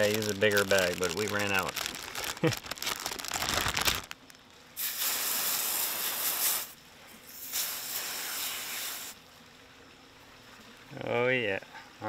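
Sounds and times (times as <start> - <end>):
hose nozzle spraying water: 4.8 - 9.2.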